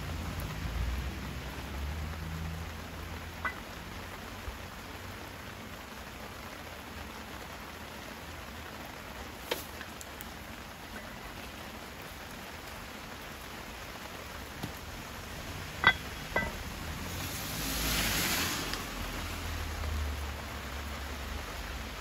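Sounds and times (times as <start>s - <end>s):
light rain: 0.0s - 22.0s
frying pan clinking down: 3.4s - 3.6s, 15.8s - 16.7s.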